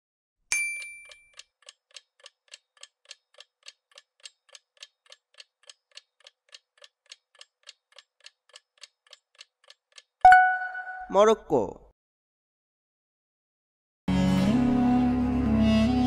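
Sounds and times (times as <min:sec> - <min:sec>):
chime: 0:00.5 - 0:01.3
faint clock-like ticks: 0:01.1 - 0:10.2.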